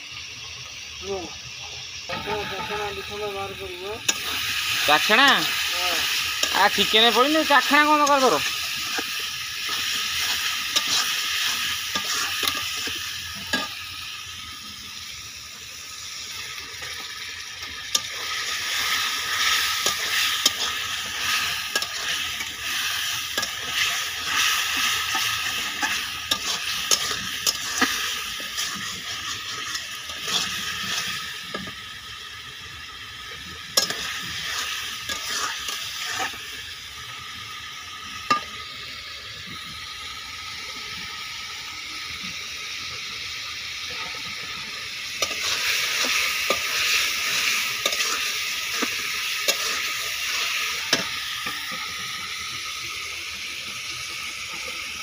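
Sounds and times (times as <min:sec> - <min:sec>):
food sizzling in a pan: 0:00.0 - 0:55.0
metal ladle scraping pan: 0:09.7 - 0:13.8, 0:17.9 - 0:31.7, 0:33.8 - 0:36.4, 0:45.2 - 0:51.1.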